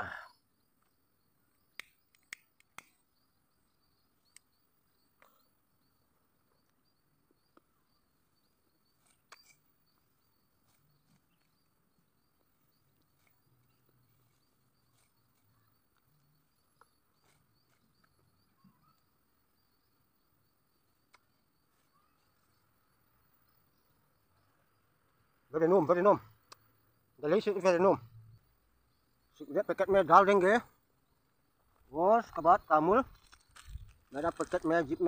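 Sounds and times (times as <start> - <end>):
faint ticks: 0.7 - 3.2, 4.2 - 7.7, 20.9 - 22.7, 26.3 - 26.8.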